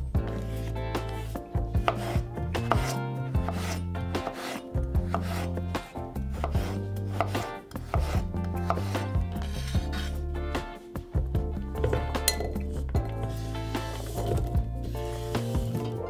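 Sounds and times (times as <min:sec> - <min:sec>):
knife cutting potatoes on board: 0:01.8 - 0:10.2.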